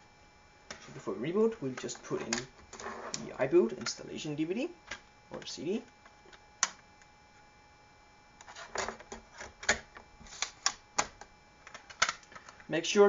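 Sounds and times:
disc drive click: 1.7 - 4.0.

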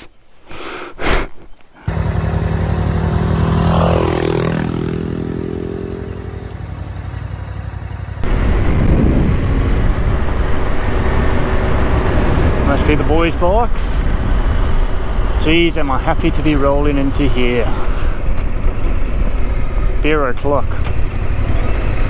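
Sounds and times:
road rumble: 1.0 - 22.0
motorcycle engine cruising: 1.8 - 22.0
wind noise: 8.2 - 19.9.

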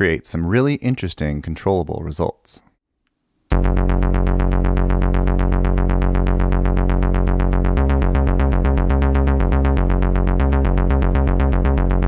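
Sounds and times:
synthesizer pulsing notes: 3.5 - 12.0.

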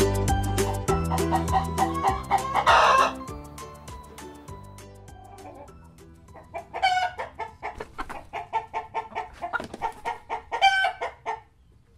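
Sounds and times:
chickens clucking: 0.8 - 3.3, 5.1 - 11.9
chicken squawks: 1.1 - 3.2, 6.6 - 11.5.

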